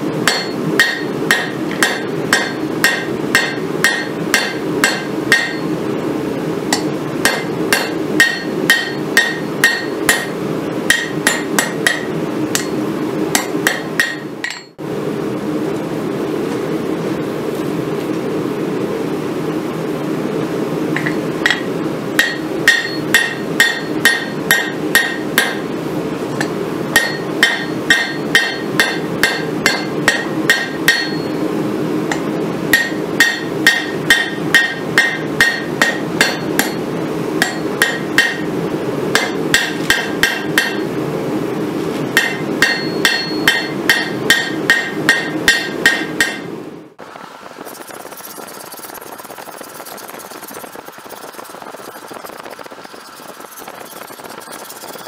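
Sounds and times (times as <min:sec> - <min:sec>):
steady low hum: 0:00.0 - 0:55.0
hammer ringing on anvil: 0:00.2 - 0:05.8, 0:06.7 - 0:10.3, 0:10.9 - 0:12.8, 0:13.4 - 0:14.8, 0:21.0 - 0:25.6, 0:26.4 - 0:31.4, 0:32.7 - 0:36.8, 0:37.4 - 0:38.4, 0:39.2 - 0:40.8, 0:42.2 - 0:46.5.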